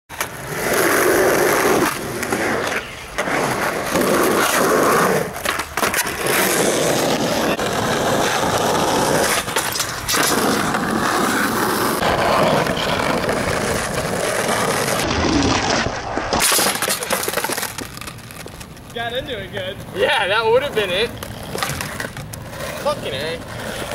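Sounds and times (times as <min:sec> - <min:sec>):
skateboard wheels rolling on asphalt: 0:00.1 - 0:23.9
skateboard clacks popping and landing: 0:01.5 - 0:19.0, 0:21.1 - 0:22.6.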